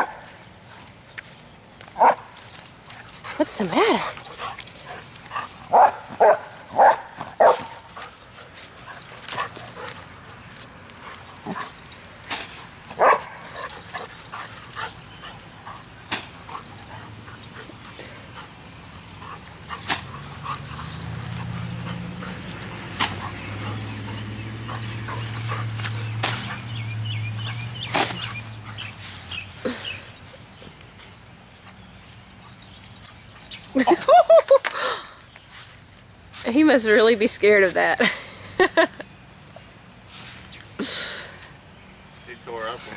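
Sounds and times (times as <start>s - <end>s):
dog barking: 2.0s - 2.3s, 5.7s - 7.8s, 13.0s - 13.5s.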